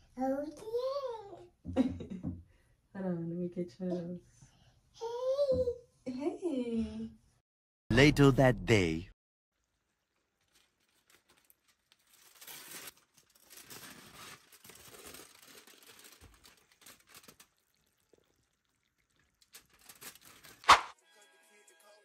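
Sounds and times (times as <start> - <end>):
aluminium foil crinkling: 9.6 - 20.7
sharp knock: 20.7 - 20.9.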